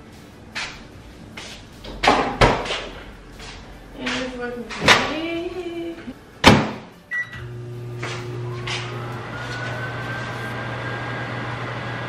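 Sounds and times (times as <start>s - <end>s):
microwave humming: 4.1s - 12.0s
keypad beep: 7.1s - 7.4s.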